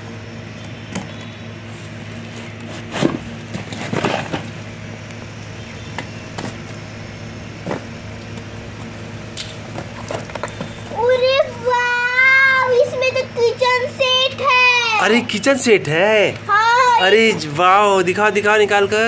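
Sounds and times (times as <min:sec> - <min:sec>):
steady low hum: 0:00.0 - 0:19.0
tape tearing: 0:01.7 - 0:04.6.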